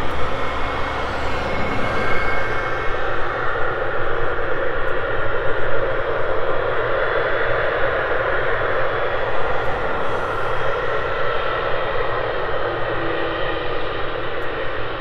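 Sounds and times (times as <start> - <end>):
jet engines rumbling: 0.0 - 14.3.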